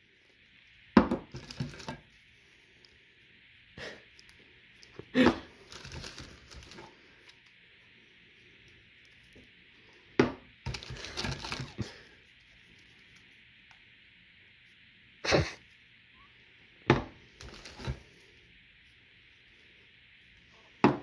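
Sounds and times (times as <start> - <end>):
scratchy rustling of shrink-wrap: 1.3 - 2.7, 4.2 - 7.4, 10.7 - 13.3, 17.3 - 18.4.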